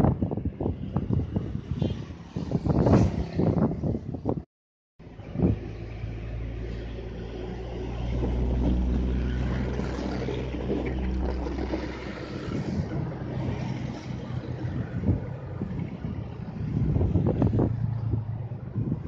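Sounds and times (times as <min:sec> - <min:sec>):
wind buffeting microphone: 0:00.0 - 0:04.5, 0:05.1 - 0:06.1, 0:07.0 - 0:19.0
vehicle engine hum: 0:05.0 - 0:19.0.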